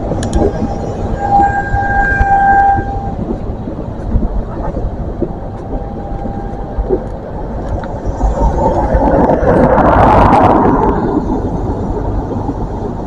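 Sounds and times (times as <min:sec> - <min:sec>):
train rumbling: 0:00.0 - 0:13.0
train horn: 0:00.5 - 0:03.3.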